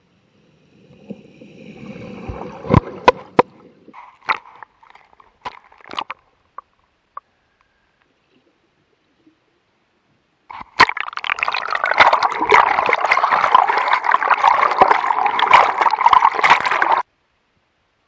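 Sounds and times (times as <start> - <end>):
water sloshing and gurgling: 0.7 - 6.6, 10.5 - 17.0
bubbly pops and clicks: 10.5 - 17.0.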